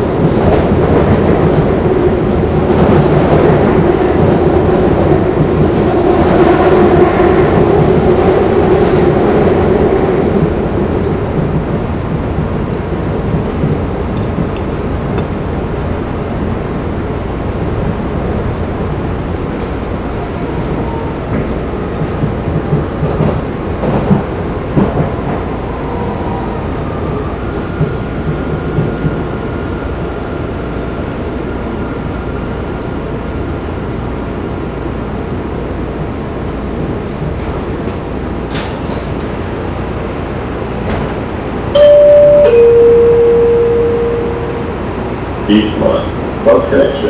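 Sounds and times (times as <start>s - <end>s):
subway car rumbling on track: 0.0s - 47.0s
two-tone chime: 41.8s - 44.6s.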